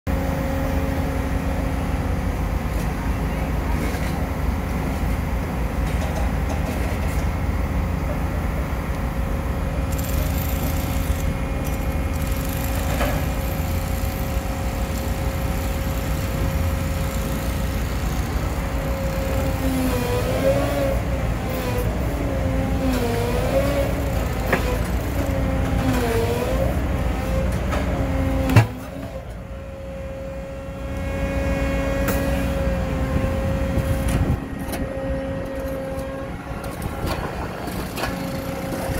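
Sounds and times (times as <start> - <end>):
hydraulic machine whining: 9.7 - 38.9.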